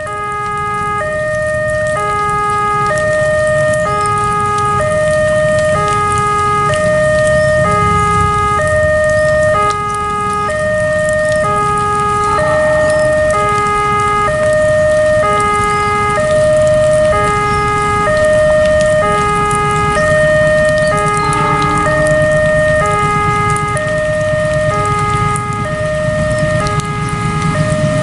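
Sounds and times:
level crossing two-tone alarm: 0.0s - 28.0s
low rumble: 4.9s - 11.4s, 16.2s - 28.0s.

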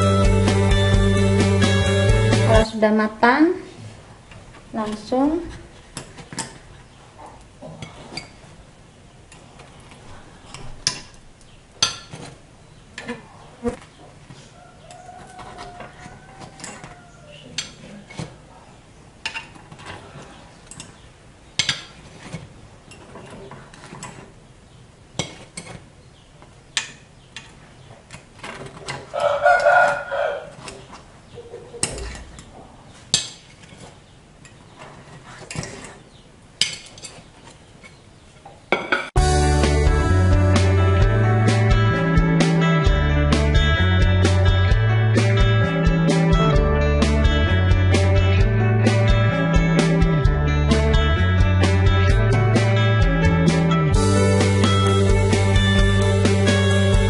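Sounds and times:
metal spoon scraping cake mould: 21.6s - 24.3s, 25.2s - 25.9s, 31.8s - 38.0s.

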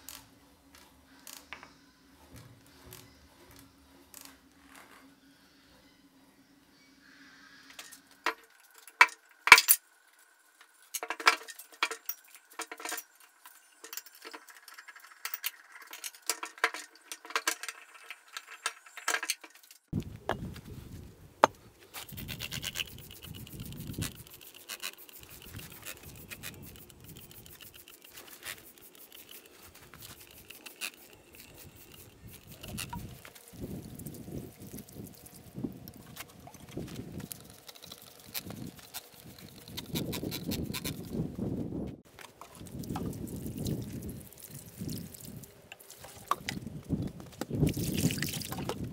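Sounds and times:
wind rumbling on microphone: 20.0s - 24.4s, 31.4s - 37.6s, 38.2s - 42.0s, 42.6s - 48.9s
trigger sprayer spraying foam: 22.0s - 33.1s.

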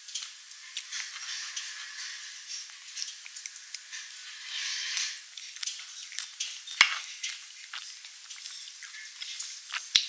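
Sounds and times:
eating sounds: 0.0s - 10.0s
metal spoon scraping a tray: 4.2s - 5.2s.

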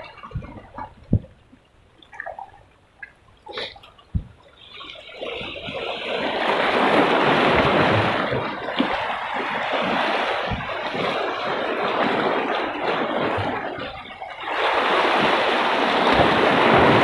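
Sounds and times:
wave surge on rocks: 6.1s - 13.6s, 14.4s - 17.0s.

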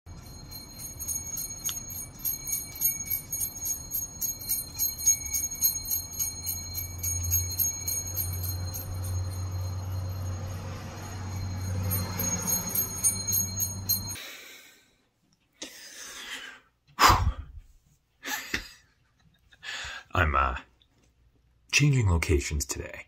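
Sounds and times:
handbells jingling: 0.1s - 14.2s.

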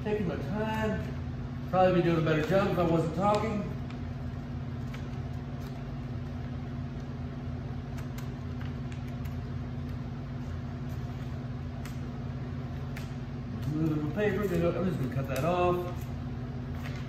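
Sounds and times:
low motor hum: 0.0s - 17.0s
scissors cutting paper: 12.8s - 17.0s.

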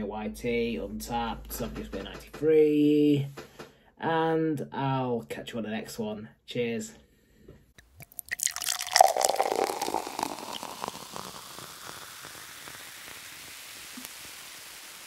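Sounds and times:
beer bubbles fizzing: 8.0s - 15.0s.

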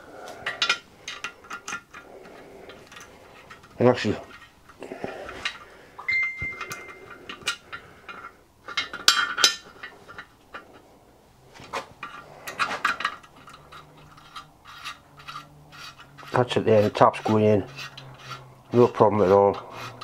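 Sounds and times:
metal clinks and scrapes: 0.3s - 20.0s
brief metallic ringing: 6.1s - 7.2s.

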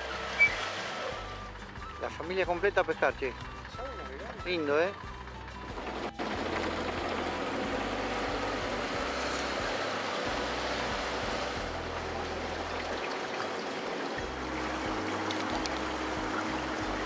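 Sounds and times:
rushing water: 0.0s - 2.5s, 6.0s - 17.0s.

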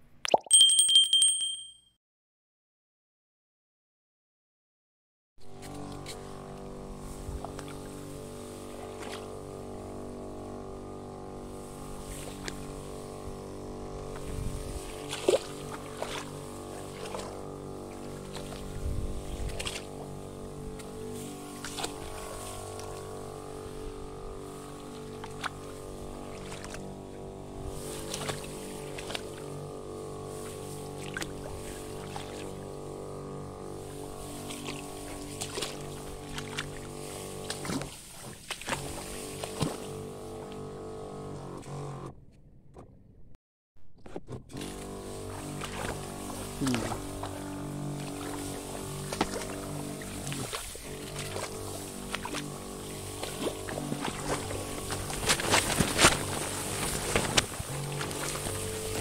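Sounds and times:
small engine running: 5.4s - 42.2s, 44.4s - 59.0s.

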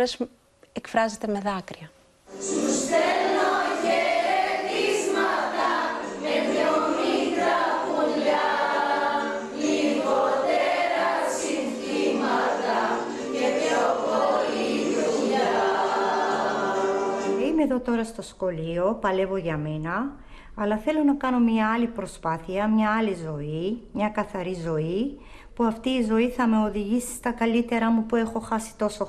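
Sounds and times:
women singing together: 2.4s - 17.5s.

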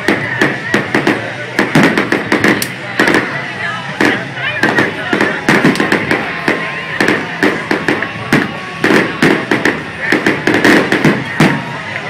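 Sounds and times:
fireworks bangs and crackles: 0.0s - 12.0s.

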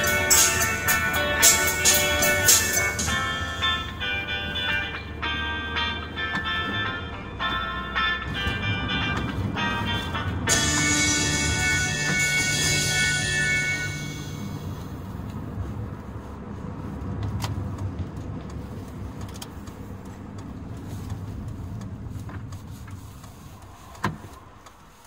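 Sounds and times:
song music: 0.0s - 15.1s
car cabin road and engine rumble: 0.0s - 25.0s.

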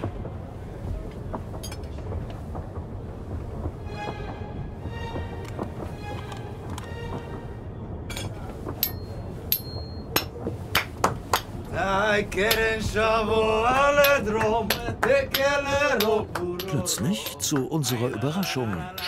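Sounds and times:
metal spoons clacking: 14.0s - 19.0s.

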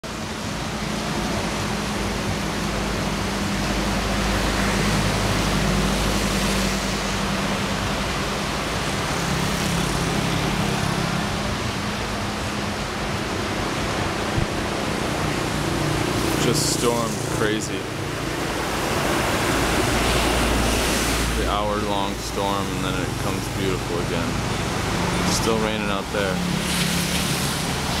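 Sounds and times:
light rain hiss: 26.4s - 28.0s.

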